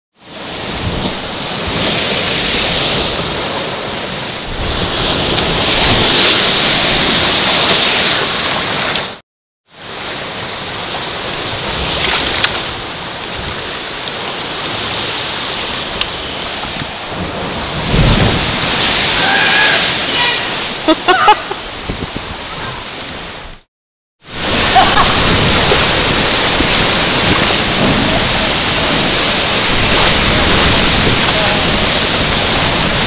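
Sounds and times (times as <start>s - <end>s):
surf breaking against cliff: 0.3s - 9.2s, 9.9s - 22.9s, 24.3s - 33.0s
wind buffeting microphone: 14.6s - 19.2s, 21.5s - 23.6s, 24.4s - 33.0s.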